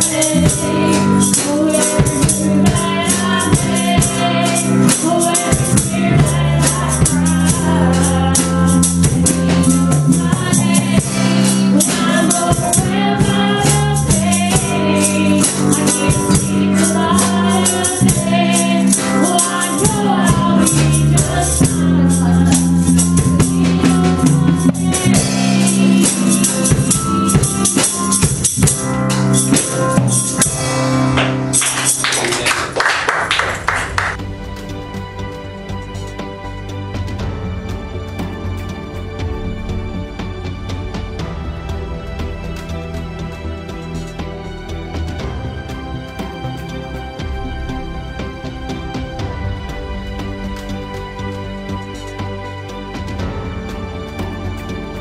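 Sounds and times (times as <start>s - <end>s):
woman singing lead: 0.0s - 27.4s
electric bass guitar: 0.0s - 32.5s
drum kit: 0.0s - 55.0s
keyboard: 0.0s - 55.0s
percussion rhythm: 0.0s - 55.0s.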